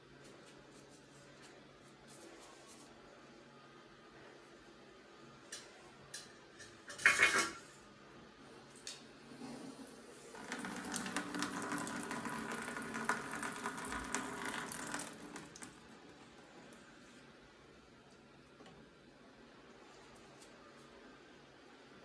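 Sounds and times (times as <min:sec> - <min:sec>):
tap running into washbasin: 0:10.3 - 0:15.9.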